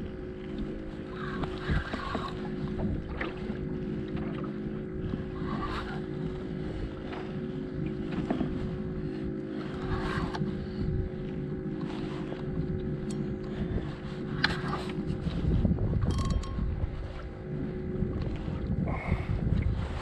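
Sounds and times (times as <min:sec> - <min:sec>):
boat motor humming: 0:00.0 - 0:20.0
wind on microphone: 0:00.0 - 0:20.0
fishing reel clicks and rustles: 0:16.0 - 0:17.0.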